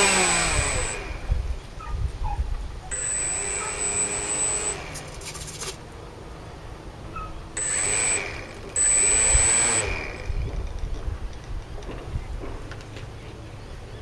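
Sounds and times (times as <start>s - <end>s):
electric motor propeller whine: 0.0s - 1.7s, 2.8s - 5.8s, 6.8s - 11.0s.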